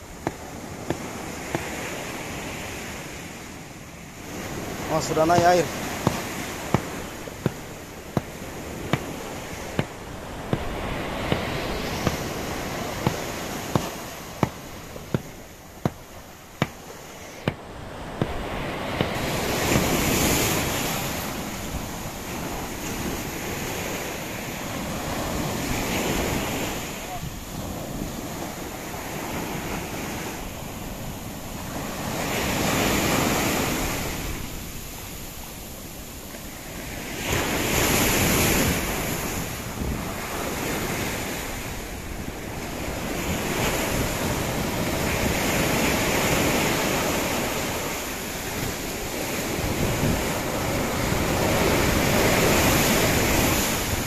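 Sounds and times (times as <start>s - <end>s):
surf breaking on beach: 0.0s - 54.0s.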